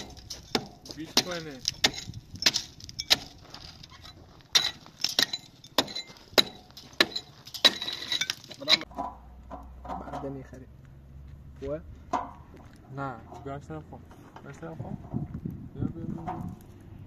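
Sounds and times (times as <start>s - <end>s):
sharp metallic clinks: 0.0s - 8.9s
trowel scraping concrete blocks: 0.0s - 9.0s.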